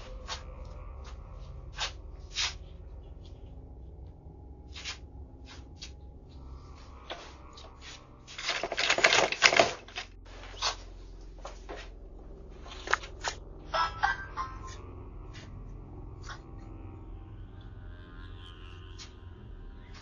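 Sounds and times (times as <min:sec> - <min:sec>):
door rattling and banging: 0:08.4 - 0:10.1.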